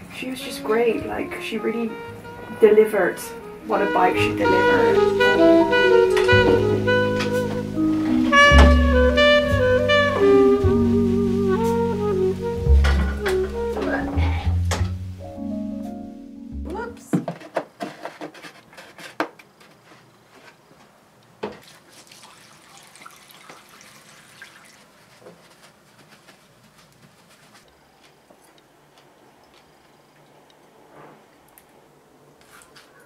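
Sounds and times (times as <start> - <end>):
liquid splashing into a sink: 21.5 - 25.0.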